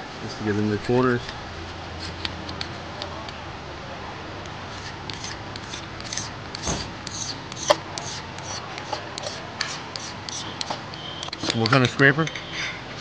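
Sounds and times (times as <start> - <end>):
scraper scraping sealant off metal: 4.7 - 10.8.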